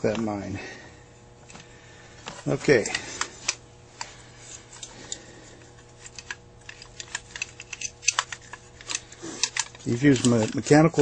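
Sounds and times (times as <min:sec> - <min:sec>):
metal carburetor parts clicking: 0:04.7 - 0:11.0.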